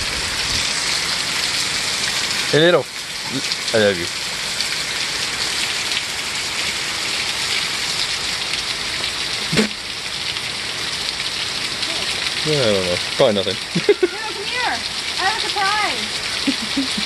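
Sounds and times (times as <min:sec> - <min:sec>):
heavy rain falling: 0:00.0 - 0:17.0
brief sharp sound: 0:09.5 - 0:09.8.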